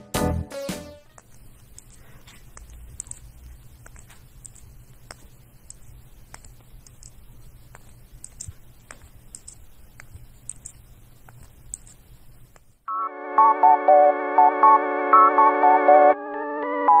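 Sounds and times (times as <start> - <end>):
low room hum: 1.0 - 12.9
plastic ball clicks and taps: 1.1 - 12.8.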